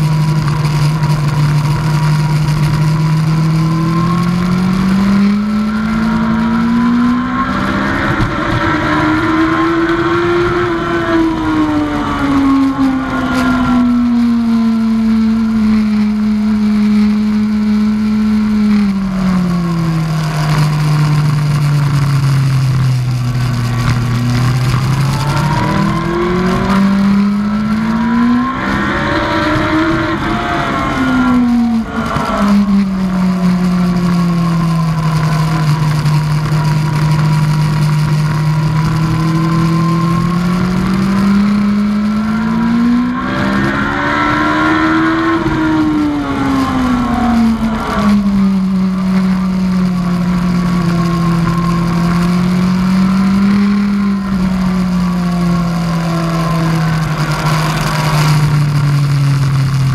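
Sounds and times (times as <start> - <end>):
motorcycle engine revving: 0.0 - 59.9
wind rushing over microphone: 18.6 - 59.9.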